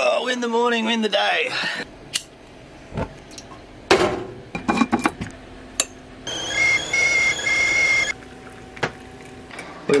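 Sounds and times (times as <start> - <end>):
whistling kettle: 6.3 - 8.2.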